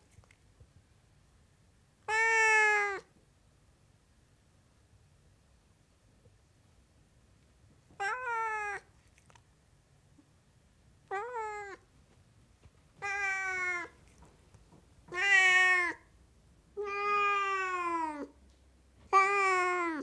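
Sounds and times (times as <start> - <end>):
cat meowing: 2.1 - 3.1, 8.0 - 8.9, 11.0 - 11.8, 13.0 - 14.2, 15.1 - 16.1, 16.8 - 18.4, 19.1 - 20.0.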